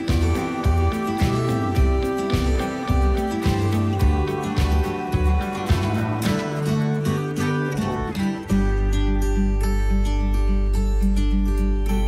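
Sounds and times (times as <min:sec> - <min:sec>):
deep steady bass: 0:00.0 - 0:06.2
plucked guitar music: 0:00.0 - 0:12.0.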